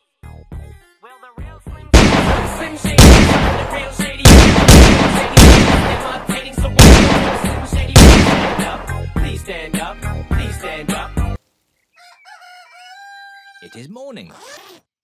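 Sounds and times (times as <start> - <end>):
loud gunshots: 2.0 - 8.9.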